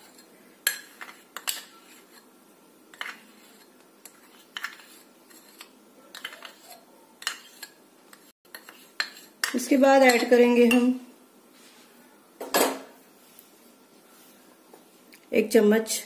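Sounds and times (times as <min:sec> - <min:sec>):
spoon scraping a glass bowl: 0:00.0 - 0:02.3, 0:02.9 - 0:10.9.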